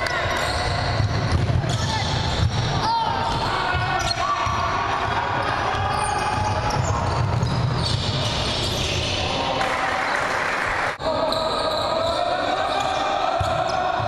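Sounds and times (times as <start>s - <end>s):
basketball bouncing on wooden court: 0.0s - 8.9s.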